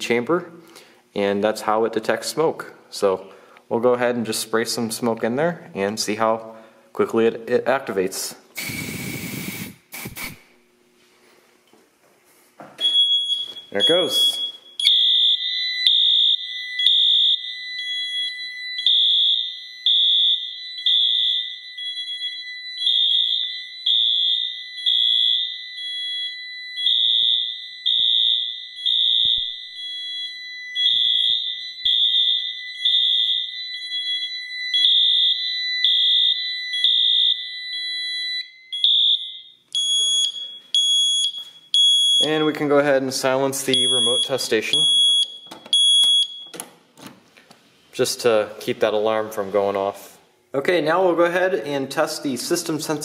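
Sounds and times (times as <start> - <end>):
fire alarm horn blasts: 12.8 - 42.6, 43.7 - 46.5
steady high-pitched alarm tone: 12.8 - 42.6, 43.7 - 46.6.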